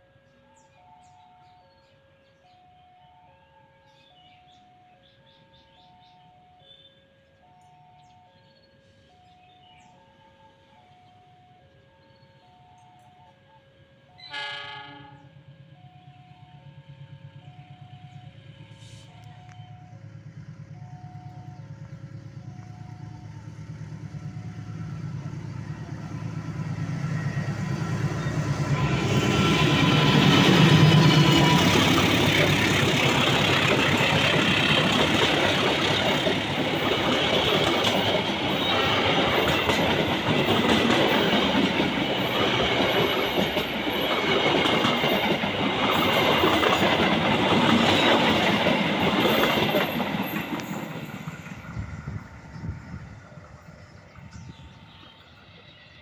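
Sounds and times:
diesel locomotive engine running hard: 0:14.5 - 0:56.0.

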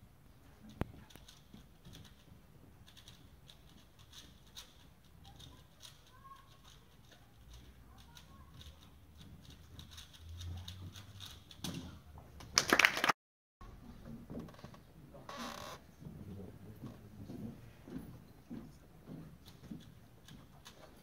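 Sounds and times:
speed cubes clicking: 0:00.7 - 0:11.6.

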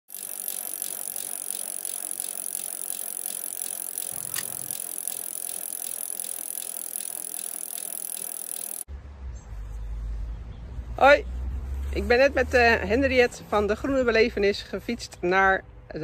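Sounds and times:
bicycle freewheel ticking: 0:00.0 - 0:08.9.

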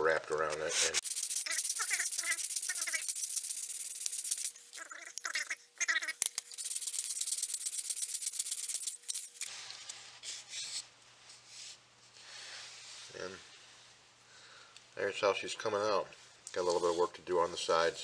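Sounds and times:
faint background hum: 0:00.0 - 0:18.0
hand sanding with sandpaper: 0:00.7 - 0:09.5.

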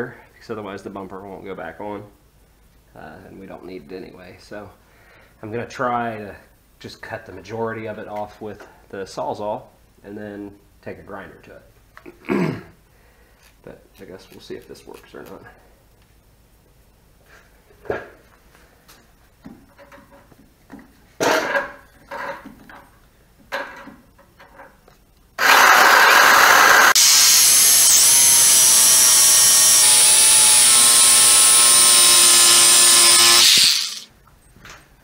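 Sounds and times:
reciprocating saw cutting: 0:25.4 - 0:34.1.

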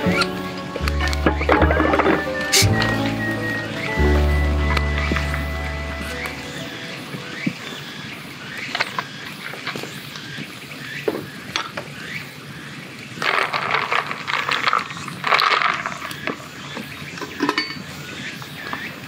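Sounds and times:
ice cubes clinking in glass: 0:13.2 - 0:16.1.

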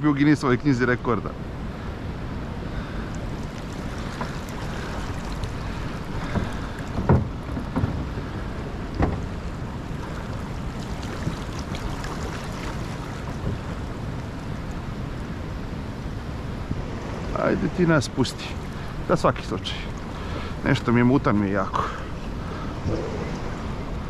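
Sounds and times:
sharp knocks: 0:06.2 - 0:08.2
wind noise on microphone: 0:22.3 - 0:24.0.

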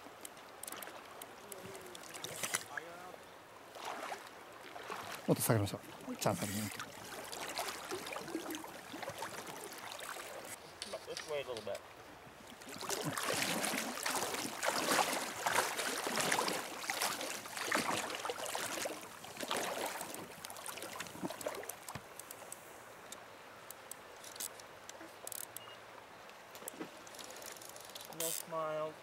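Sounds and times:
river water rushing: 0:00.1 - 0:24.9
faint clicks: 0:00.2 - 0:02.7, 0:21.4 - 0:28.5.

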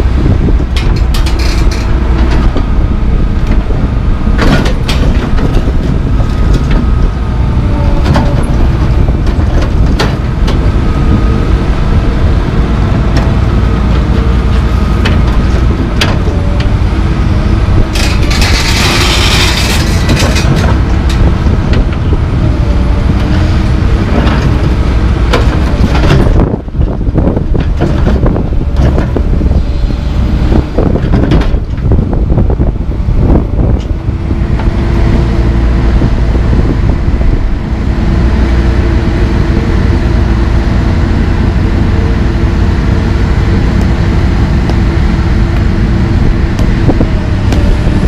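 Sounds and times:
diesel engine running: 0:00.0 - 0:48.0
hydraulic whine: 0:00.0 - 0:48.0.

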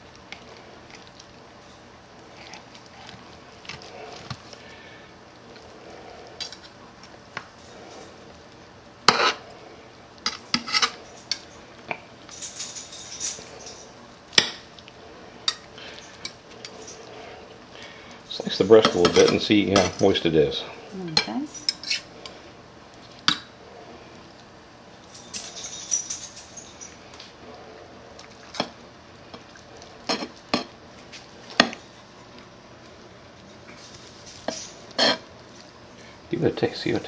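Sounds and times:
knife and fork scraping: 0:21.6 - 0:22.1, 0:34.4 - 0:35.2
metal clinking on plate: 0:25.2 - 0:27.0.

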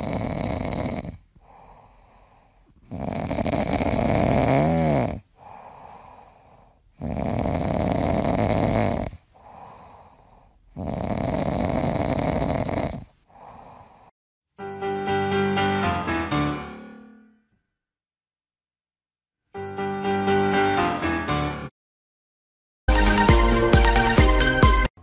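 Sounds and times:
dog snoring: 0:00.0 - 0:06.3, 0:06.9 - 0:14.1.

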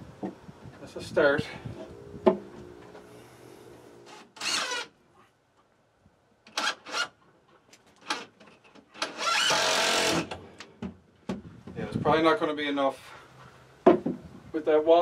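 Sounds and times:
cordless driver running screws: 0:04.1 - 0:04.9, 0:06.5 - 0:07.1, 0:09.0 - 0:10.4.

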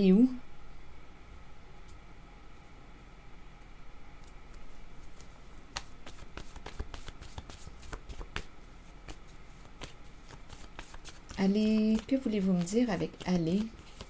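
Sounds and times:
cards being shuffled: 0:04.2 - 0:14.0.

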